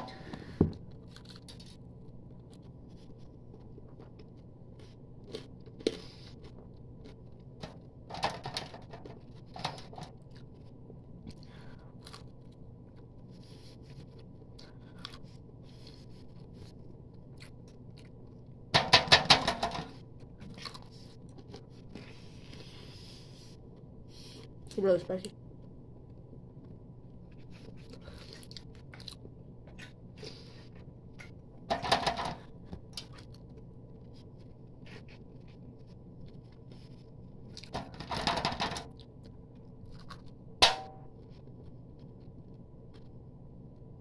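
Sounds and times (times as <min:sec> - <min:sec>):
person chewing: 0:00.9 - 0:07.8, 0:10.2 - 0:18.5, 0:20.2 - 0:24.6, 0:26.6 - 0:31.4, 0:39.0 - 0:40.4.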